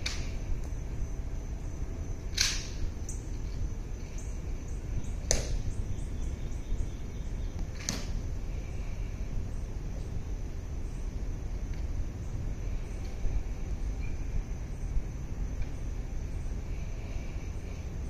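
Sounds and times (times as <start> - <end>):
faint low outdoor rumble: 0.0 - 18.0
sharp crisp clicks: 2.3 - 2.8.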